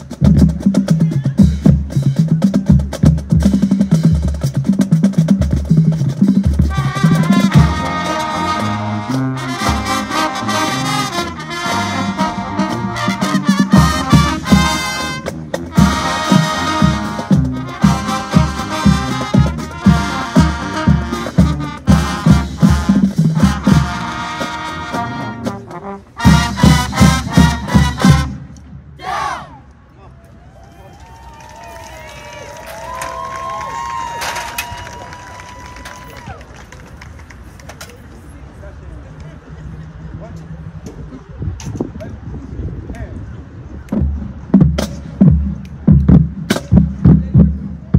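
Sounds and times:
marching drumline: 0.0 - 29.5, 43.9 - 47.9
brass section held chords: 6.6 - 28.4.

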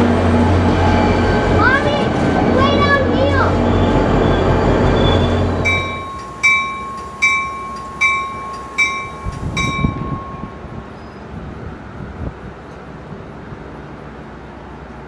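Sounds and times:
loud low drone: 0.0 - 7.3
low rumble of arriving train: 0.0 - 15.0
railroad bell ringing: 2.7 - 11.2.

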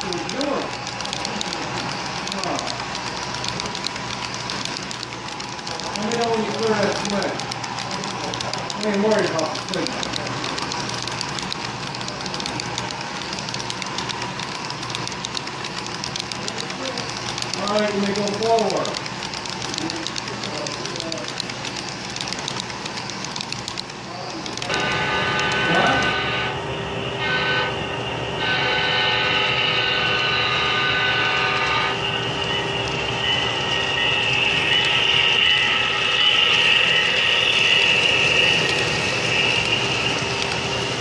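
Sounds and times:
model train wheels clicking on track: 0.0 - 26.2, 34.1 - 41.0
model locomotive diesel horn: 24.7 - 26.6, 27.2 - 32.1, 34.6 - 40.6.

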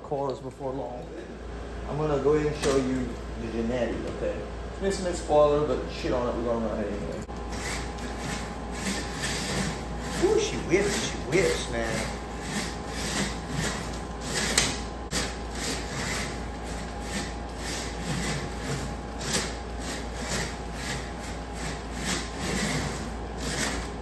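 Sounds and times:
small electric motor whirring: 7.5 - 24.0.

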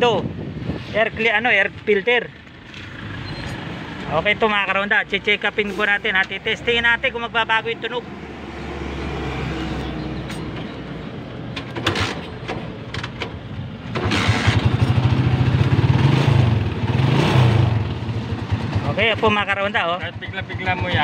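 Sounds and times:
motorcycle engine idling and revving: 1.5 - 5.5, 6.3 - 21.0.

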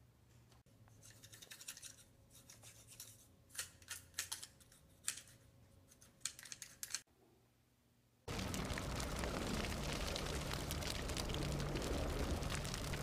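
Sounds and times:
wooden parts scratching and clicking: 6.0 - 7.0.

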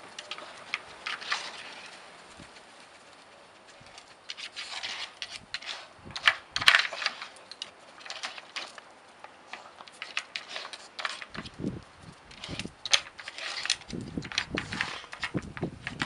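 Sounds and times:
wooden puzzle toy knocking and scraping: 4.3 - 8.8, 12.3 - 16.0.

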